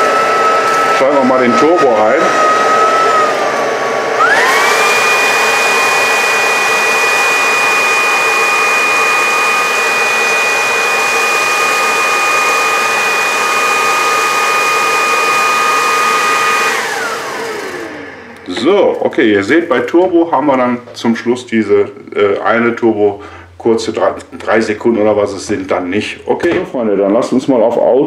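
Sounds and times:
vacuum motor whine: 0:00.0 - 0:19.0.

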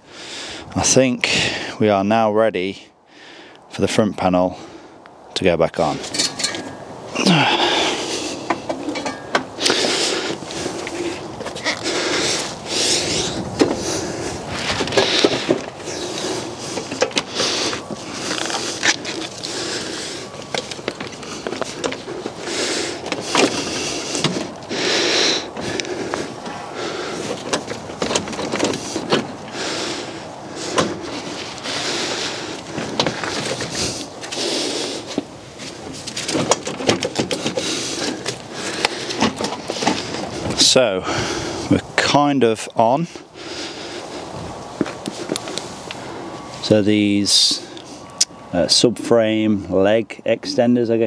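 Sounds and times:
rustling and scraping: 0:05.8 - 0:41.8, 0:42.8 - 0:46.9
metal and plastic parts rattling: 0:06.0 - 0:06.7, 0:08.4 - 0:11.2, 0:13.5 - 0:24.6, 0:27.2 - 0:29.4, 0:35.7 - 0:40.6
clicks and knocks of parts: 0:08.4 - 0:10.0, 0:16.7 - 0:19.5, 0:27.2 - 0:29.6, 0:35.9 - 0:40.2.

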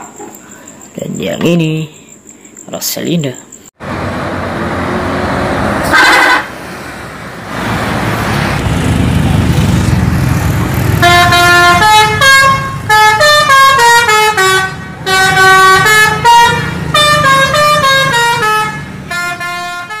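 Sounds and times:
bus engine running: 0:03.8 - 0:20.0
musical bus horn tune: 0:05.8 - 0:06.6, 0:10.9 - 0:20.0.

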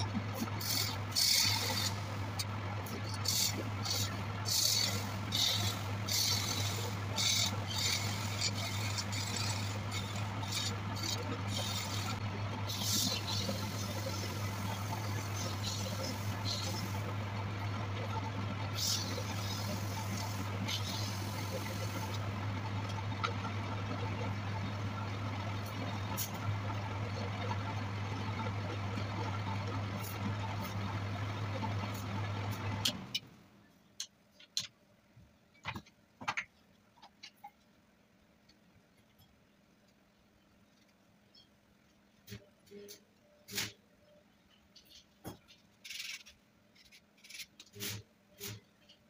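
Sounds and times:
lathe motor hum: 0:00.0 - 0:33.1.

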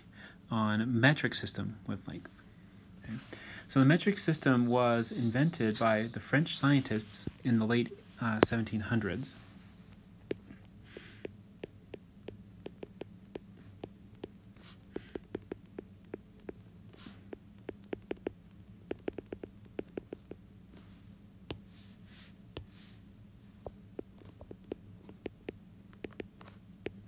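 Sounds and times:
steady low hum: 0:00.0 - 0:27.0
stylus tapping on glass screen: 0:11.0 - 0:14.4, 0:15.0 - 0:16.7, 0:17.6 - 0:20.4, 0:24.0 - 0:27.0.

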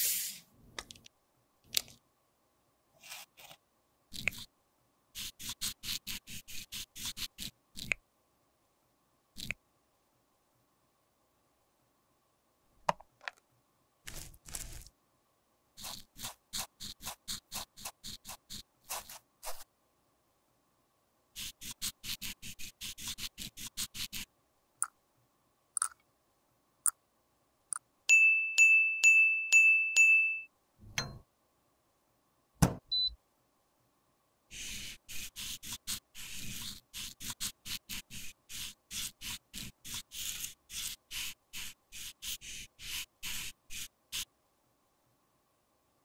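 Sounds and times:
makeup brush on pressed powder: 0:15.8 - 0:19.7, 0:34.5 - 0:44.3
thump: 0:32.6 - 0:32.9.

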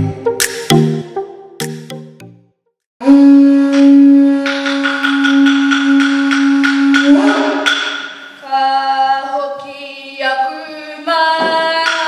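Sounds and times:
person singing a long high note: 0:03.0 - 0:07.7.

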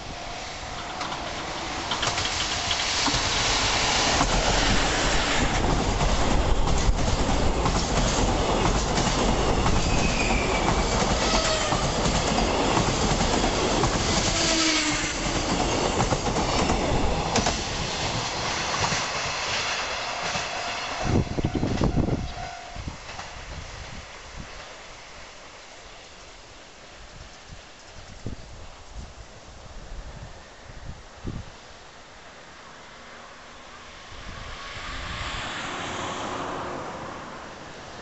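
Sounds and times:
train wheels rumbling on rails: 0:00.0 - 0:24.9.

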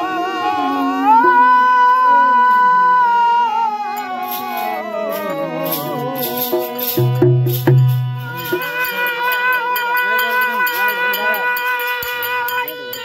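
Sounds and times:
devotional singing: 0:00.0 - 0:13.0
harmonium: 0:00.0 - 0:13.0
sharp percussion strikes: 0:04.0 - 0:13.0.

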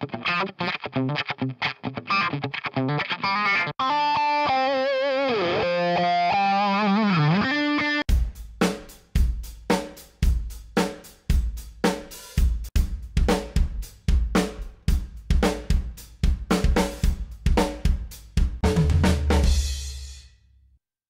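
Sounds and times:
rock drum kit groove: 0:08.1 - 0:20.2.

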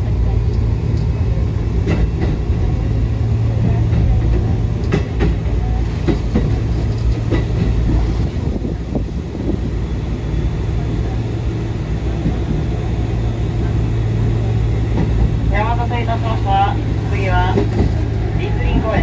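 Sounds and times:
electric train running hum: 0:00.0 - 0:19.0.

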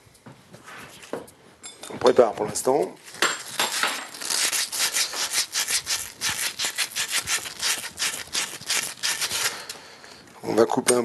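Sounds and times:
emery cloth rubbing copper pipe: 0:04.1 - 0:09.7.

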